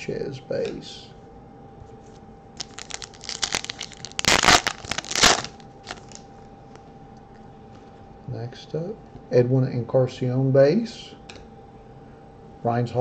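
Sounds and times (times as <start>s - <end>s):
foil card pack tearing: 2.6s - 6.2s
wrapper crinkling: 2.6s - 6.2s.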